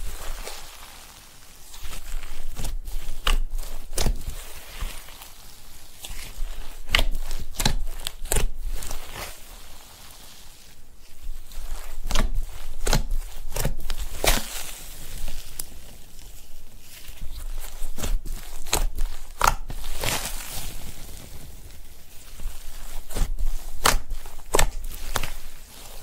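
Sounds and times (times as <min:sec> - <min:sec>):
slime squishing and popping: 0:01.8 - 0:05.3, 0:06.0 - 0:09.4, 0:11.4 - 0:15.7, 0:17.5 - 0:20.6, 0:22.4 - 0:26.0.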